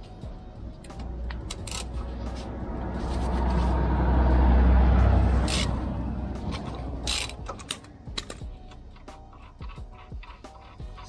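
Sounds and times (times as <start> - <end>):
ratchet ratcheting: 0.8 - 2.2, 5.4 - 11.0.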